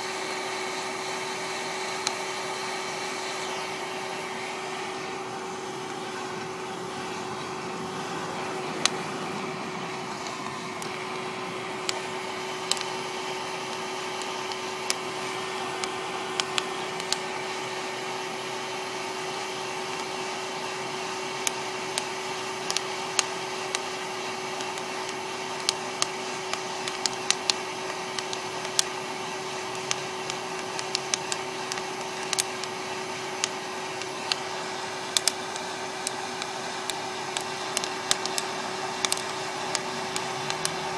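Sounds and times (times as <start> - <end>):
popper fan humming: 0.0 - 40.9
coffee beans cracking: 10.0 - 13.0, 15.8 - 17.3, 21.4 - 23.9, 24.6 - 34.5, 35.1 - 40.9.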